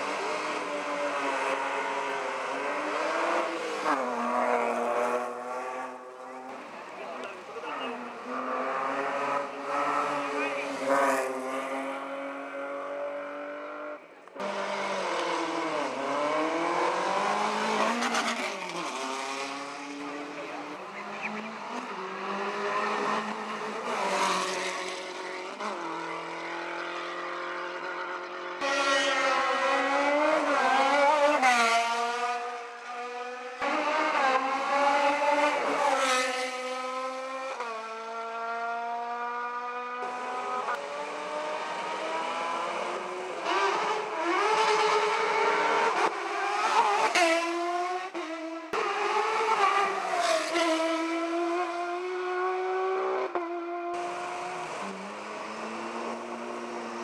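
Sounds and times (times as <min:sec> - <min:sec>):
race car engine accelerating: 0:00.0 - 0:57.0.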